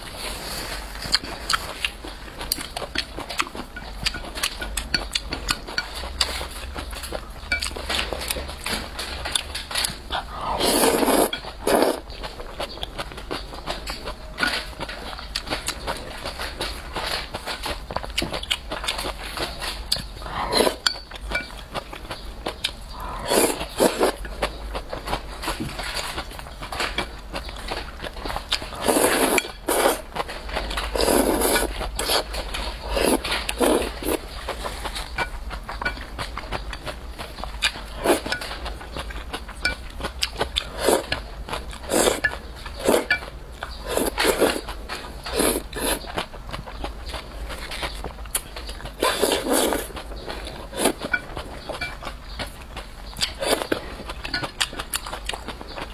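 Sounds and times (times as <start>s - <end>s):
wet chewing and mouth clicks: 0.9s - 55.9s
chopsticks clinking on bowl: 2.6s - 6.5s, 37.7s - 38.6s, 39.6s - 41.2s, 41.9s - 44.6s, 50.6s - 52.2s
noodles slurped: 10.1s - 12.0s, 30.9s - 32.3s.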